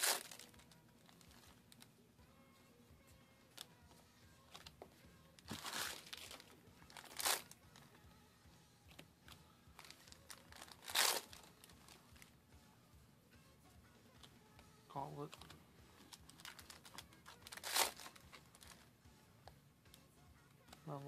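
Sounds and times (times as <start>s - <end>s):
wrappers crinkling: 0.0s - 1.9s, 5.4s - 7.8s, 9.8s - 12.3s, 15.3s - 18.9s.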